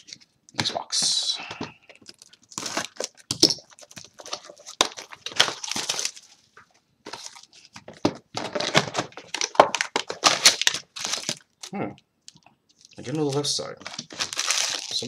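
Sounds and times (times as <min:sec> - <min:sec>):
plastic shrink wrap crinkling: 0:01.9 - 0:11.7, 0:12.7 - 0:15.0.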